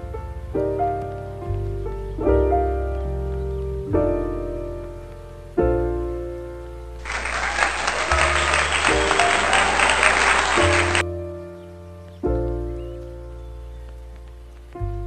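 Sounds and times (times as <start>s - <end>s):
piano chords: 0.0s - 15.0s
canned applause: 7.0s - 11.0s.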